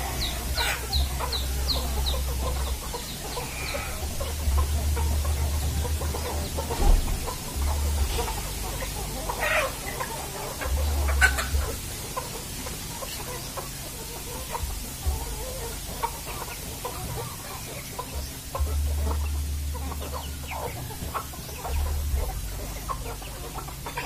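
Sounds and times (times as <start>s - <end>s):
low rumble: 0.0s - 9.4s
chickens clucking: 0.0s - 24.0s.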